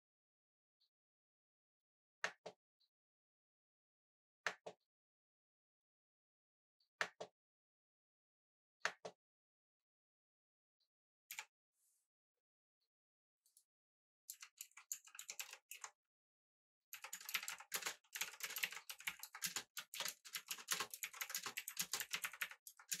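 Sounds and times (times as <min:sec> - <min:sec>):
clicky mechanical keyboard typing: 0:14.3 - 0:15.9, 0:17.0 - 0:23.0.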